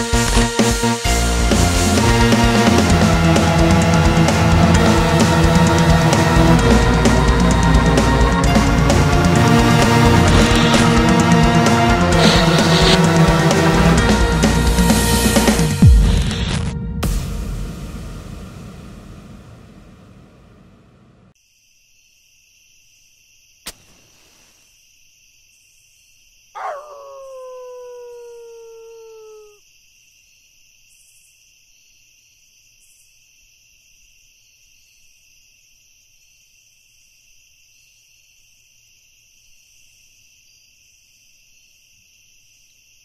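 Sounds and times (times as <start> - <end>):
high insect chirring: 21.5 - 29.9
animal howl falling in pitch: 26.6 - 29.6.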